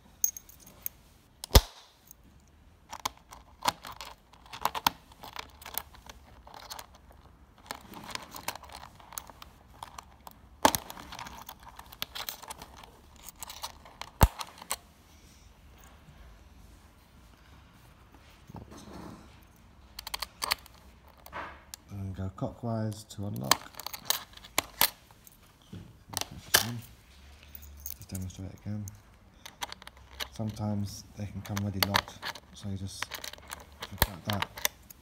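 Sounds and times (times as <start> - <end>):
metal latch clicking and scraping: 20.0 - 21.8, 31.4 - 35.0.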